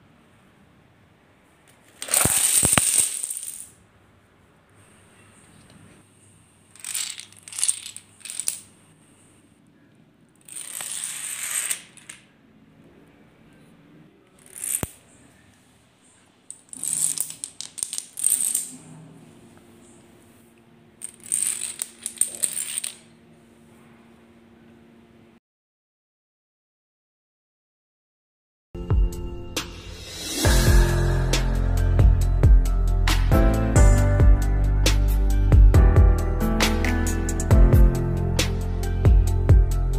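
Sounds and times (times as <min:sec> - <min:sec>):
dominoes toppling on tiled floor: 0:01.9 - 0:03.8, 0:06.7 - 0:08.7, 0:10.4 - 0:12.3, 0:14.4 - 0:15.0, 0:16.5 - 0:18.8, 0:21.0 - 0:23.1.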